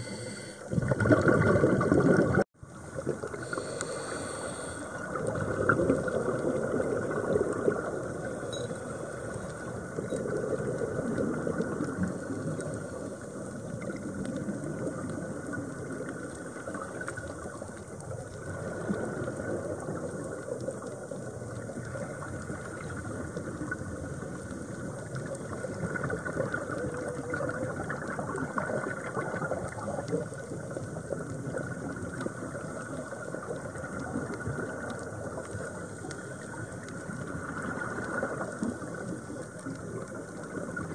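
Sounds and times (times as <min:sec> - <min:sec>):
underwater hiss: 0:00.0 - 0:02.0, 0:02.9 - 0:17.8, 0:18.4 - 0:20.5, 0:34.2 - 0:40.0
air bubbles bubbling: 0:00.0 - 0:04.2, 0:04.8 - 0:40.9.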